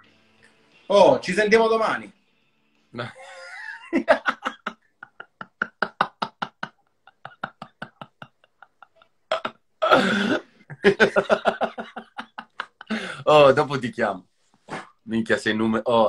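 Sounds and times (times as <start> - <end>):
men laughing hard: 3.0 - 13.3.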